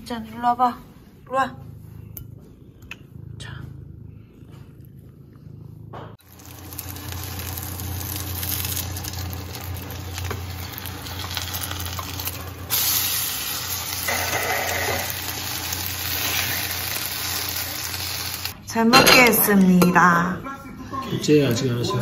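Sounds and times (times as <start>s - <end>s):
low hum: 0.8s - 18.6s
pancake sizzling in oil: 6.2s - 18.6s.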